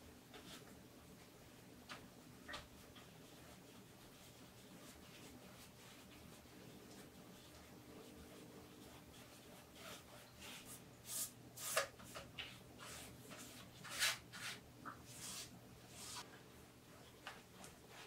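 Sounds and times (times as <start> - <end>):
paintbrush strokes on canvas: 2.8 - 16.3.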